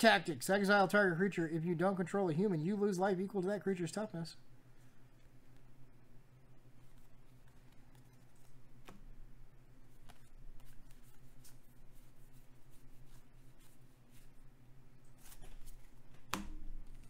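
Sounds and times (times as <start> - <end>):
steady low hum: 0.0 - 17.0
cards flicked by hand: 10.0 - 11.6, 15.2 - 17.0.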